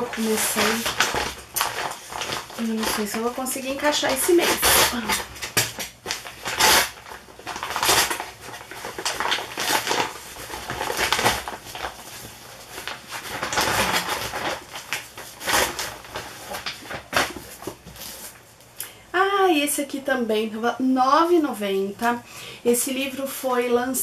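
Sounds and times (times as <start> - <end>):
paper package rustling: 0.0 - 18.6.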